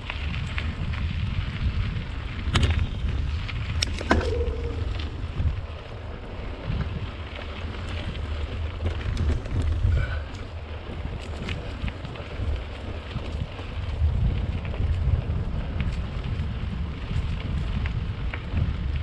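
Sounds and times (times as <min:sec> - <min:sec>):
bike rattling over bumps: 0:00.0 - 0:19.0
sharp clacks of bike: 0:00.0 - 0:19.0
tyres rolling on dirt and leaves: 0:00.0 - 0:19.0
wind on microphone: 0:00.0 - 0:19.0.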